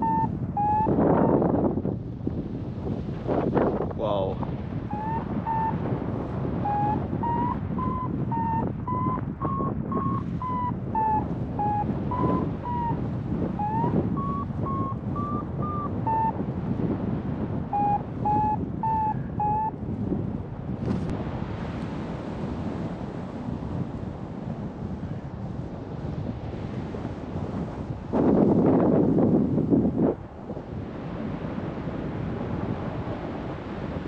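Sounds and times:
variometer beeping: 0:00.0 - 0:00.9, 0:04.9 - 0:05.8, 0:06.7 - 0:13.0, 0:13.6 - 0:16.4, 0:17.8 - 0:19.8
wind on microphone: 0:00.0 - 0:34.0.

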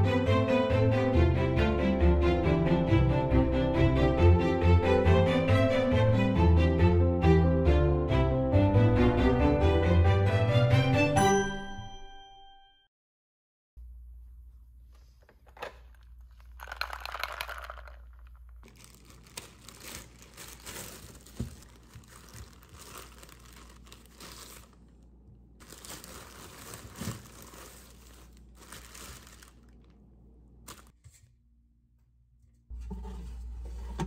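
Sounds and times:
plastic bag crinkling: 0:15.4 - 0:30.9.

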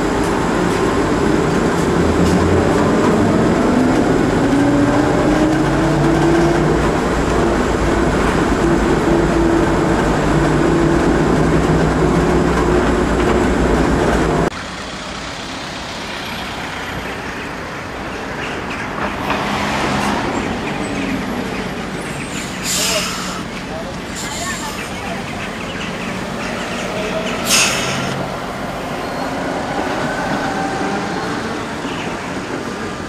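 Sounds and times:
bus interior rumble: 0:00.0 - 0:33.0
street sound: 0:00.0 - 0:33.0
bus driving past: 0:14.4 - 0:33.0.

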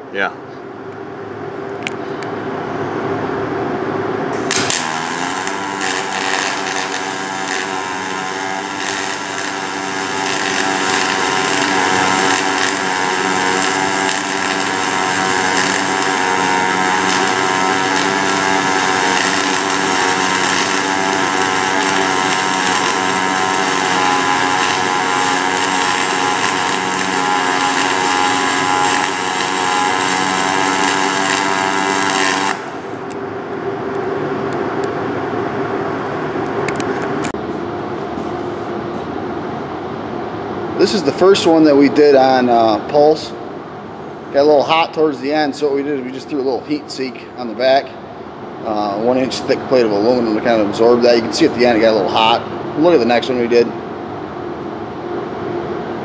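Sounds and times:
welding arc buzzing: 0:04.3 - 0:34.1.

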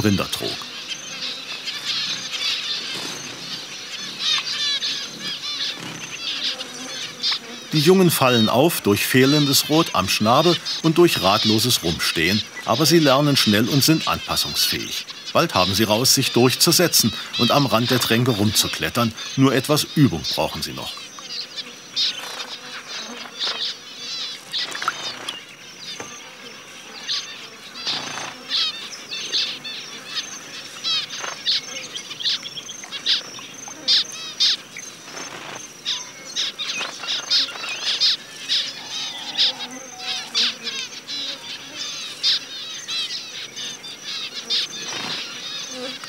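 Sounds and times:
finches peeping: 0:00.0 - 0:46.0
wings fluttering: 0:01.5 - 0:21.0, 0:22.2 - 0:26.2, 0:27.8 - 0:28.8, 0:30.9 - 0:31.6, 0:35.0 - 0:35.7, 0:36.6 - 0:40.8, 0:44.8 - 0:46.0.

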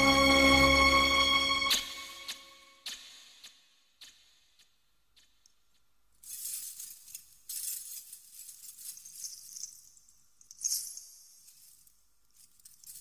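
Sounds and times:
small bells jingling: 0:06.3 - 0:13.0.

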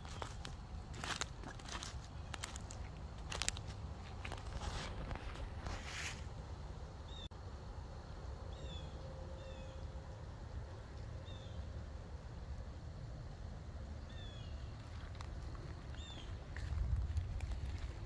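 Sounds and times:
bird chirping: 0:08.5 - 0:09.9, 0:14.0 - 0:14.8, 0:15.9 - 0:16.4
steady low rumble: 0:09.9 - 0:18.0.

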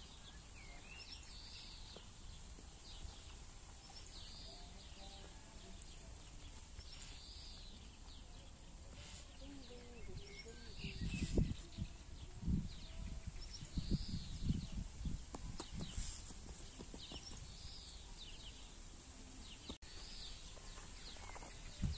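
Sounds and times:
birds chirping: 0:00.0 - 0:21.9.

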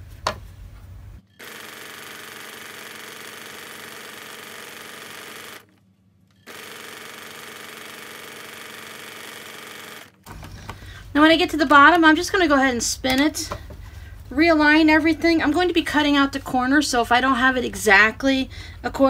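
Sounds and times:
electric sewing machine running: 0:01.4 - 0:05.7, 0:06.4 - 0:10.6.

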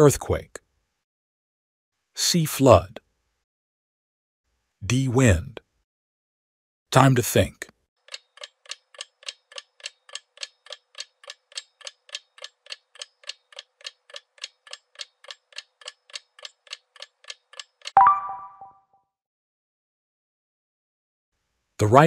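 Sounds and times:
timer ticking: 0:08.0 - 0:18.4
short ringing chime: 0:18.0 - 0:18.8.

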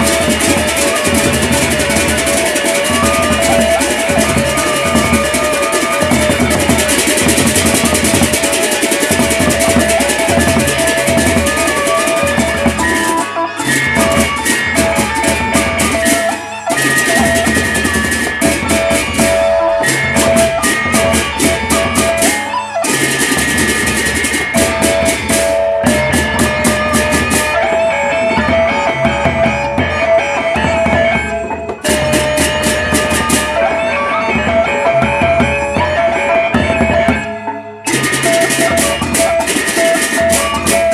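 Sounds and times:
barrel drums beaten with sticks: 0:00.0 - 0:33.7.

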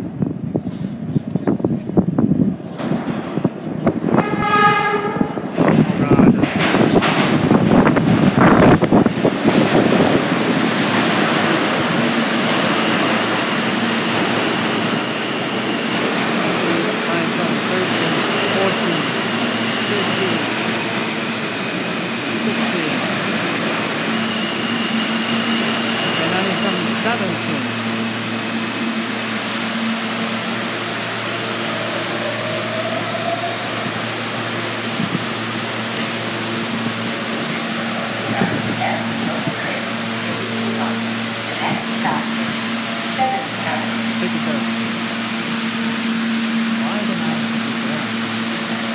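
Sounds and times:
subway train wheels rumbling: 0:00.0 - 0:48.9
short high whistle: 0:32.9 - 0:33.7.

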